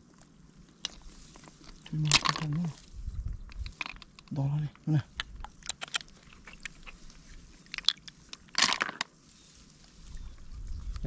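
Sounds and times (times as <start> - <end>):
noisy rustle: 5.0 - 11.0.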